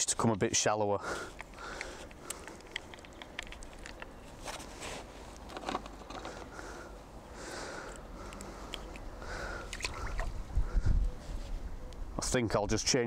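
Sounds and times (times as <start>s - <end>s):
low steady background hum: 0.0s - 13.0s
small clicks: 1.4s - 4.1s
hands rustling fishing rig: 7.8s - 9.1s.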